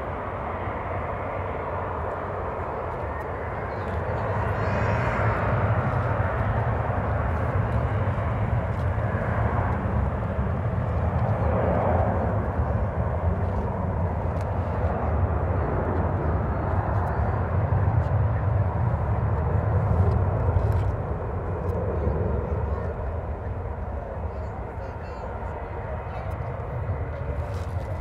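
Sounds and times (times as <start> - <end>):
jet engines roaring: 0.0 - 28.0.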